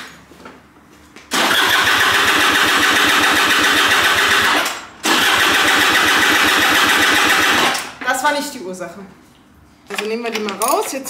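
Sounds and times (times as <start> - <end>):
scooter starter cranking engine: 1.3 - 8.0.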